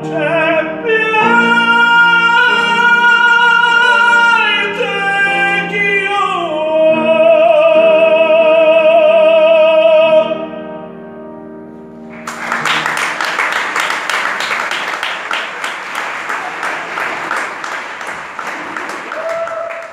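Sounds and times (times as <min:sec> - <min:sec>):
man singing opera: 0:00.0 - 0:10.4
grand piano chords: 0:00.0 - 0:19.9
audience applause: 0:12.1 - 0:19.9.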